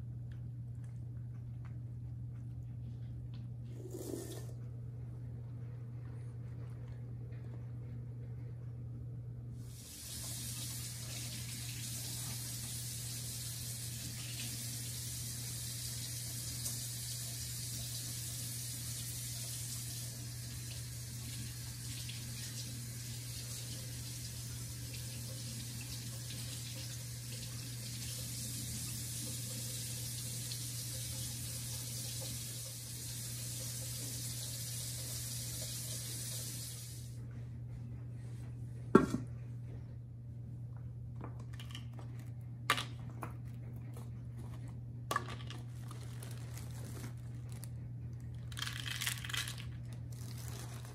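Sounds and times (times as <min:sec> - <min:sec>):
tap running into sink: 0:39.0 - 0:39.3.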